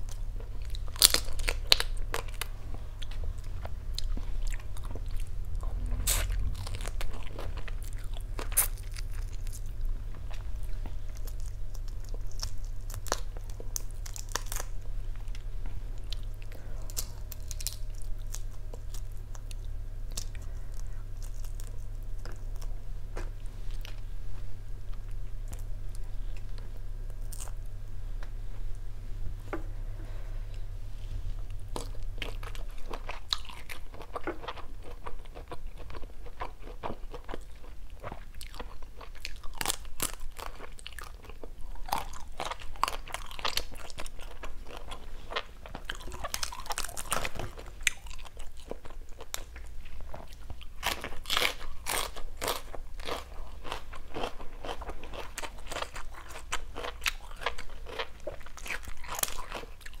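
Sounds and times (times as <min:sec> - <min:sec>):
person chewing crunchy food: 0:00.0 - 0:24.1, 0:24.9 - 0:27.8, 0:31.4 - 1:00.0.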